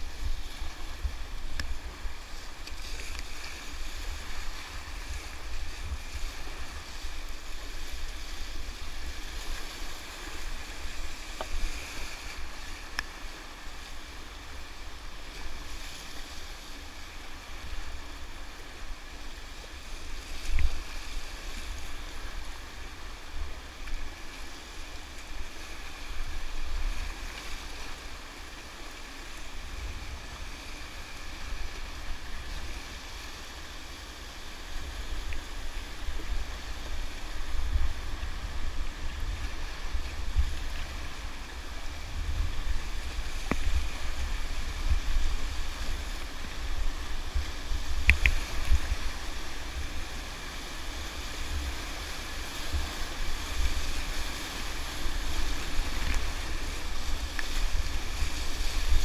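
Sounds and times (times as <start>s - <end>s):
wind buffeting the microphone: 34.6s - 59.0s.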